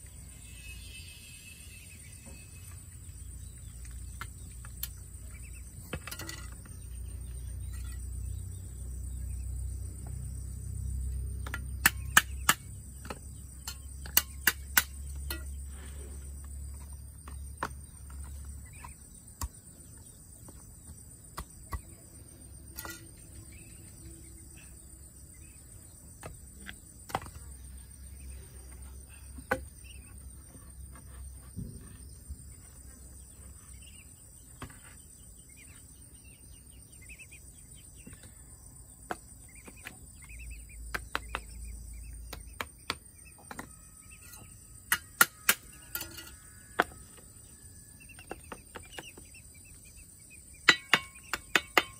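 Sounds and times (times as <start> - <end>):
insects trilling: 0.0 - 51.9
sharp knocks: 50.6 - 51.9.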